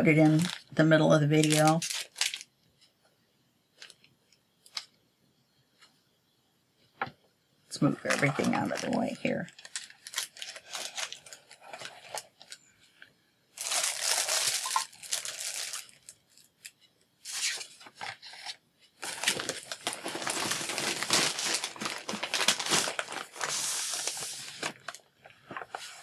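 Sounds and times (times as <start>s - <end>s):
plastic packaging crinkling: 0.0s - 2.5s, 7.8s - 12.6s, 13.6s - 26.0s.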